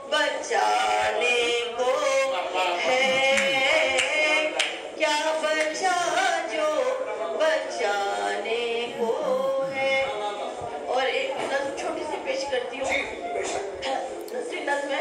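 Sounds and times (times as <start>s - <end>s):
woman singing into a microphone: 0.0s - 10.2s.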